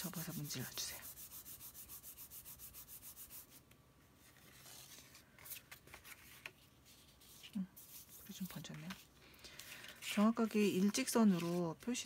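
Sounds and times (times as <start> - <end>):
hands rubbing paper card: 0.0 - 12.0
paper handling: 4.2 - 12.0.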